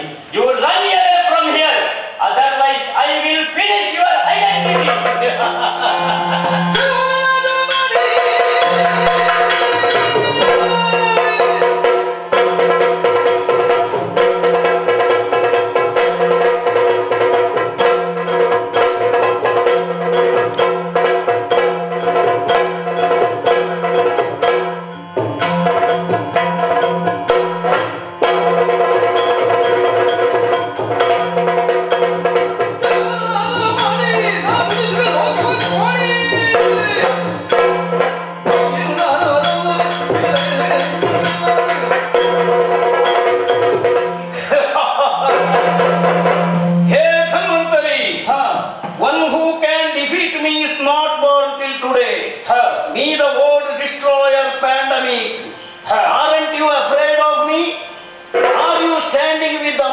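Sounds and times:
fast drum strokes: 3.1s - 51.2s, 52.3s - 59.9s.

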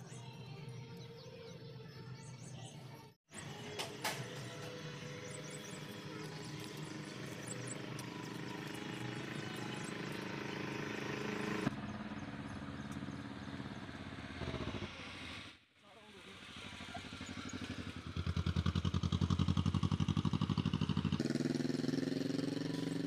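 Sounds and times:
motor engine running: 3.5s - 15.5s, 16.1s - 23.0s
small birds chirping: 4.2s - 14.0s.

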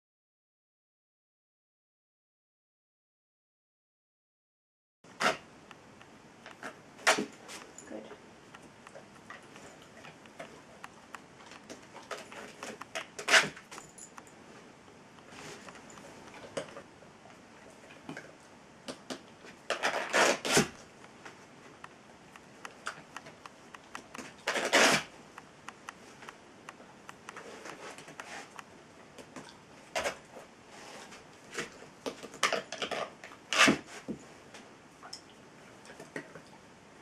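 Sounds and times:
small clicks and taps: 8.5s - 14.3s, 25.4s - 29.5s
dog claws scraping scratch pad: 9.3s - 13.8s, 19.7s - 20.8s, 22.7s - 25.1s, 32.5s - 33.8s.

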